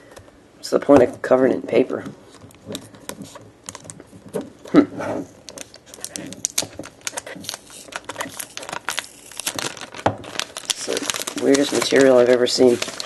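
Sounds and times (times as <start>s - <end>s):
paper crinkling and tearing: 5.5s - 13.0s.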